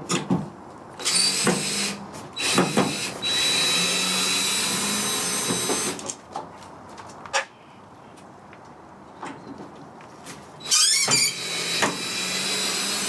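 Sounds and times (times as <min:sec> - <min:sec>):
cordless drill whining: 0:01.0 - 0:06.0, 0:10.6 - 0:13.0.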